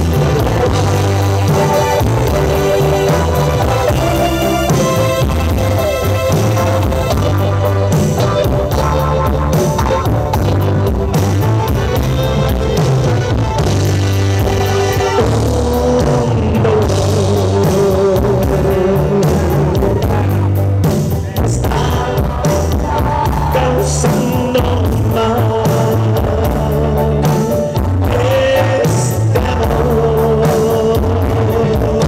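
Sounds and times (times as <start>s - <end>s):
live rock band over pa: 0.0s - 32.0s.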